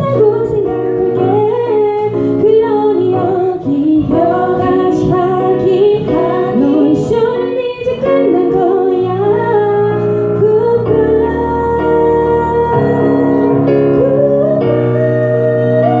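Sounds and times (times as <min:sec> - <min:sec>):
electric keyboard: 0:00.0 - 0:16.0
women's group singing pop song: 0:00.0 - 0:16.0.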